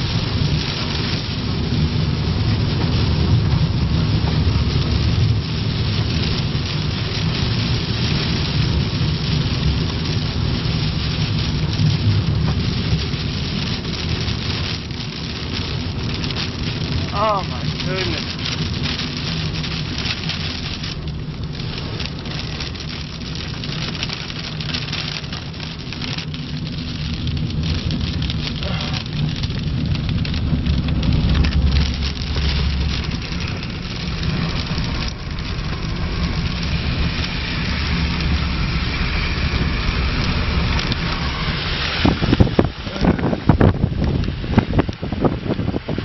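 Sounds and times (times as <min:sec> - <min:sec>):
engine and road rumble: 0:00.0 - 0:46.0
rain pattering on car: 0:00.0 - 0:46.0
wind buffeting microphone: 0:17.7 - 0:46.0.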